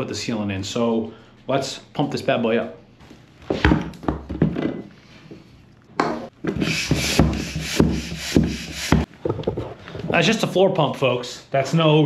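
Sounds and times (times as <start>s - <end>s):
floor pump hissing and knocking: 6.4s - 9.1s.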